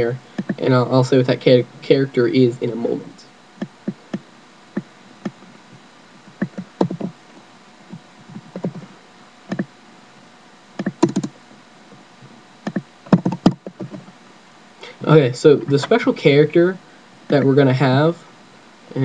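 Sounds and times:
computer keyboard typing: 6.4s - 7.1s, 8.3s - 8.8s, 10.8s - 11.3s, 12.7s - 14.0s.

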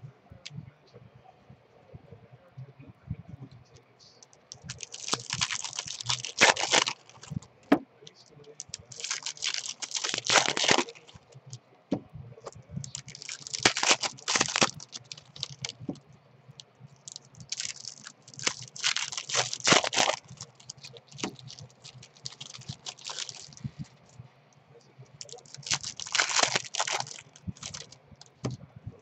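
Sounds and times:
plastic wrapper crinkling and tearing: 4.4s - 7.8s, 8.4s - 11.6s, 12.8s - 16.0s, 16.6s - 23.8s, 25.2s - 28.6s.

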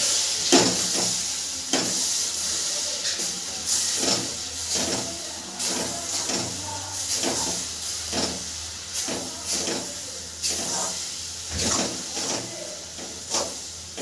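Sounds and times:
syrup hissing in a pan: 0.0s - 14.0s.

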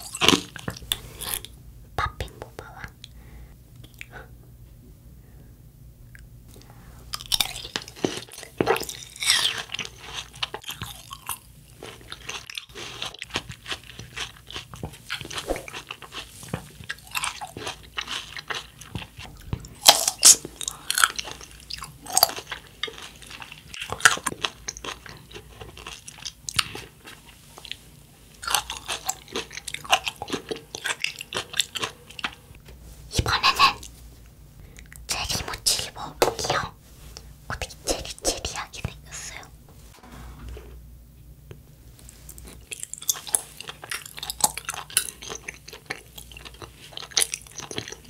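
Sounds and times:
chewing and crunching: 0.0s - 1.6s, 6.1s - 32.6s, 42.1s - 48.0s.

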